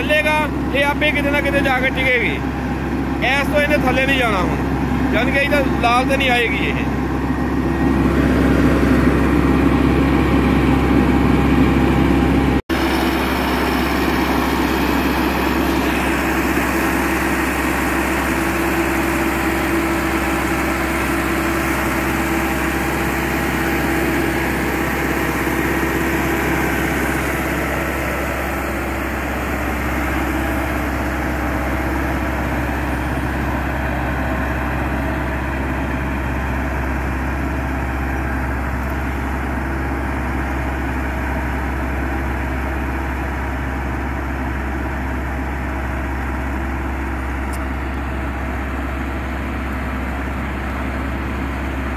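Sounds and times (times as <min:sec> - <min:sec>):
tractor diesel engine running: 0:00.0 - 0:51.9.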